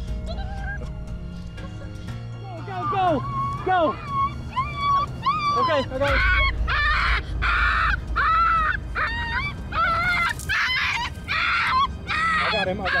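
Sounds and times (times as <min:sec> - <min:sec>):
puppy crying and yelping: 0:02.8 - 0:13.0.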